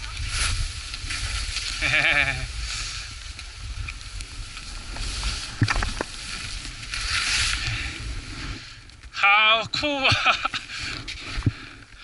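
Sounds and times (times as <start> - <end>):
skis scraping over snow: 0.0 - 9.1
wind rumble on microphone: 0.0 - 12.0.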